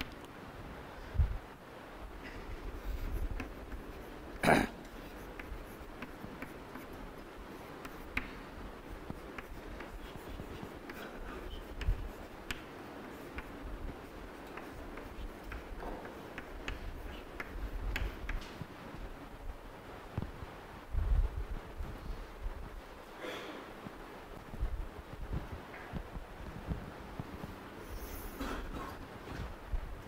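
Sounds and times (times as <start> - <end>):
chalk tapping and scraping: 2.6 - 18.7.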